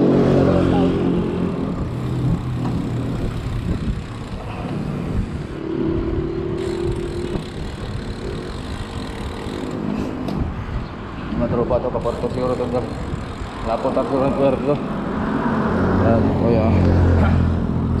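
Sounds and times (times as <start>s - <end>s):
motor traffic: 0.0s - 18.0s
wind rumbling on microphone: 0.4s - 18.0s.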